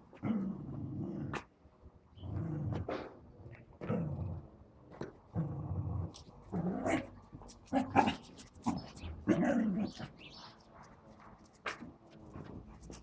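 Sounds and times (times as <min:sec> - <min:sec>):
small dog growling: 0:02.2 - 0:03.2, 0:03.8 - 0:10.2.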